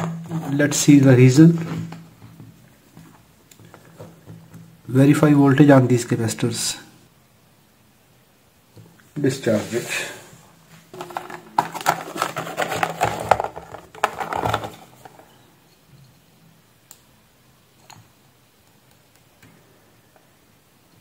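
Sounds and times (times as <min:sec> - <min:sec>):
plastic box clattering on workbench: 0:10.9 - 0:15.2.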